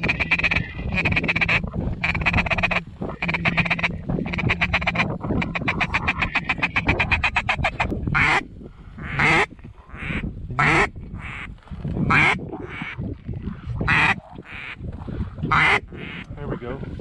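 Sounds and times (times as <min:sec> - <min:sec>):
duck call chuckle: 0:00.0 - 0:08.4
duck call quacks: 0:00.0 - 0:08.4, 0:09.0 - 0:11.5, 0:12.1 - 0:13.0, 0:13.9 - 0:14.8, 0:15.5 - 0:16.2.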